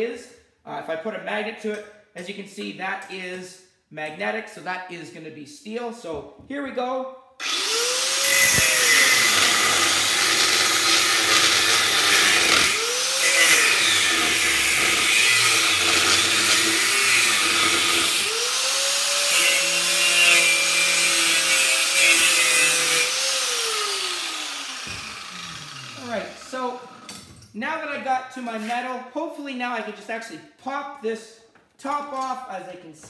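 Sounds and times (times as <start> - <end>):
angle grinder cutting metal: 7.4 - 27.3.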